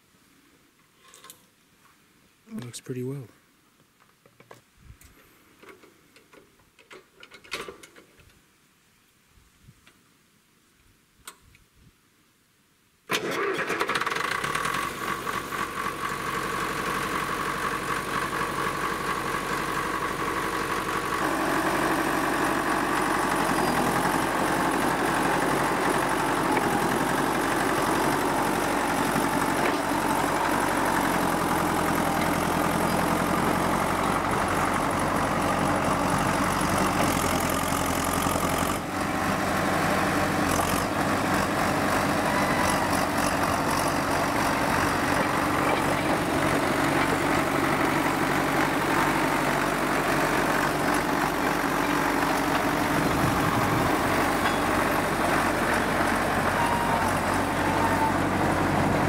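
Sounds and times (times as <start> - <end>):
bulldozer engine running: 13.2 - 59.0.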